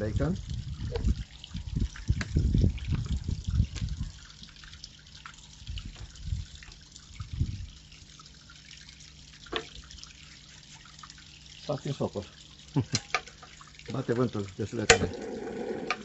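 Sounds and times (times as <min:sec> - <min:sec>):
wind buffeting microphone: 0:00.0 - 0:04.3, 0:05.6 - 0:07.8.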